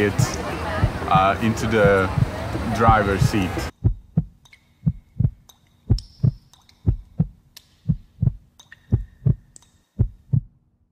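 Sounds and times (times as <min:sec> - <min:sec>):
low steady hum: 0:00.0 - 0:10.7
heartbeat thumps: 0:00.1 - 0:10.5.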